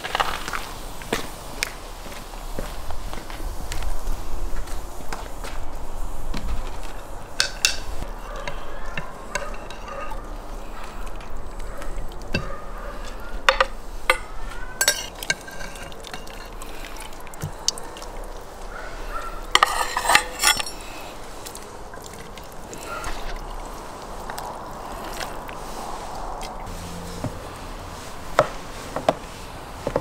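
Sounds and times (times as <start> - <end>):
metal skimmer clinking on pot: 7.4 - 18.2, 18.8 - 23.4.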